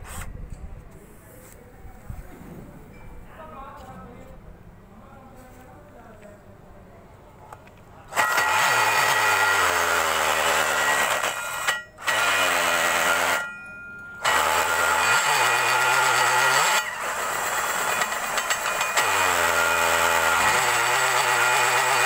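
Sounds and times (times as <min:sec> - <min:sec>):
drill grinding steel: 0:08.1 - 0:13.6, 0:14.2 - 0:22.0.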